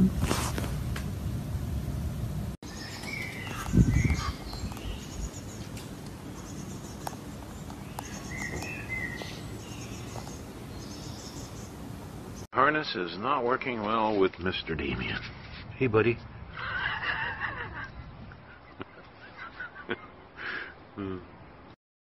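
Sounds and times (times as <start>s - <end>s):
birds chirping: 2.6s - 12.5s.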